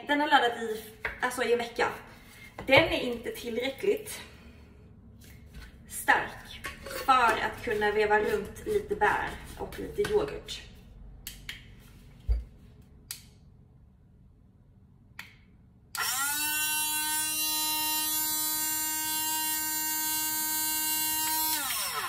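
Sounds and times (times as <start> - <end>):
blender motor whirring: 16.0 - 22.0.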